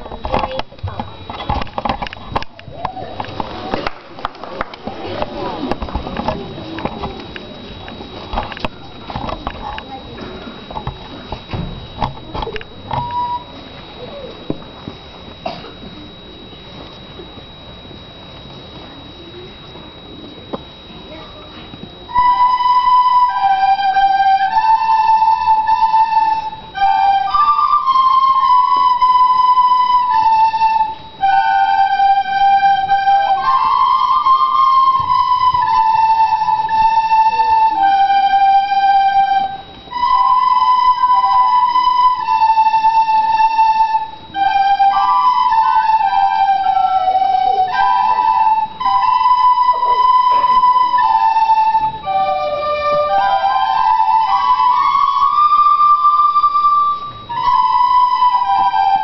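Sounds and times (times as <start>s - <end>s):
children playing recorders: 0.0s - 3.9s, 4.6s - 17.7s, 18.4s - 59.0s.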